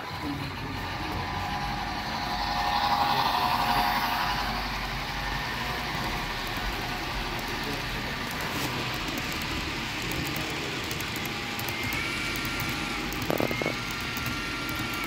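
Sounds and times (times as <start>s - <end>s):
model train running noise: 0.0s - 15.0s
mid-pitched tone: 0.2s - 8.0s.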